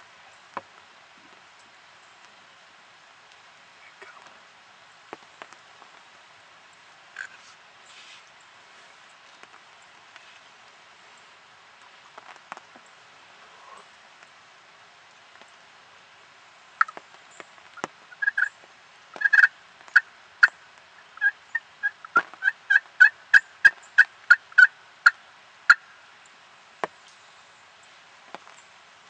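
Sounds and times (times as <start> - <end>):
turkey yelping: 18.2 - 18.5, 19.2 - 20.6, 21.2 - 25.9.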